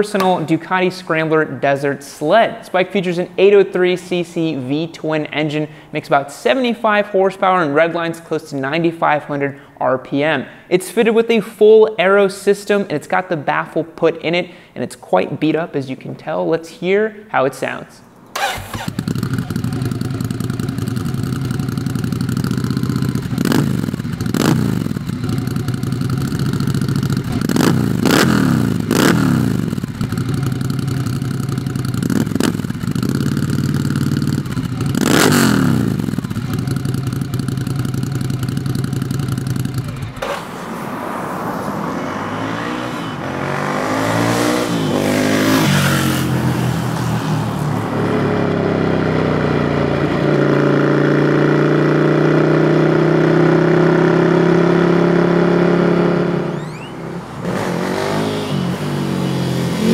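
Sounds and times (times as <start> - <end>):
motorcycle throttle blips: 18.3 - 40.6, 56.3 - 59.9
motorcycle engine idling: 18.4 - 40.3
motorcycle accelerating through gears: 18.4 - 59.9.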